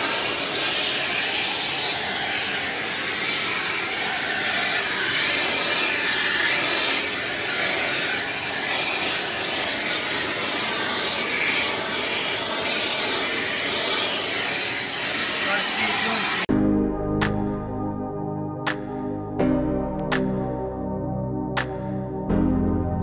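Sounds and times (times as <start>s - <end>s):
gas torch flame hissing: 0.0s - 16.5s.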